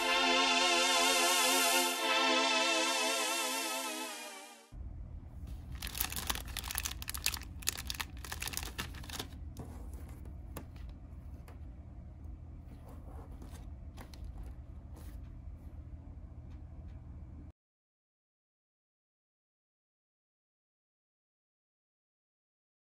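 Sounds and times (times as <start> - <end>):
low steady hum: 4.6 - 17.5
face mask crinkling and rustling: 5.5 - 11.5.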